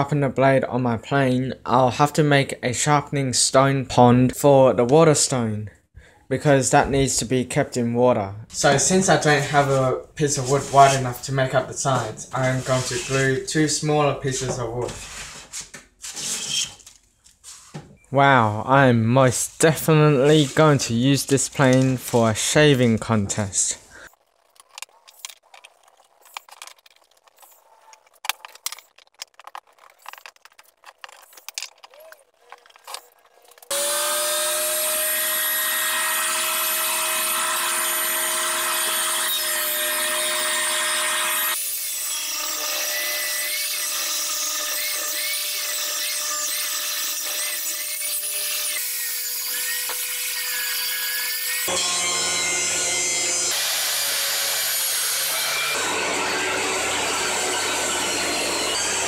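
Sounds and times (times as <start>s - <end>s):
thickness planer running: 55.4s - 59.0s.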